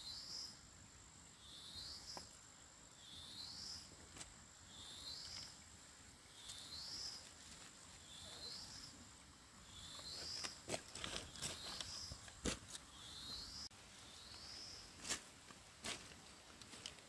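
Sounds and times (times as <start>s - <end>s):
insect buzzy call: 0.0s - 4.0s
high insect whine: 0.0s - 7.4s.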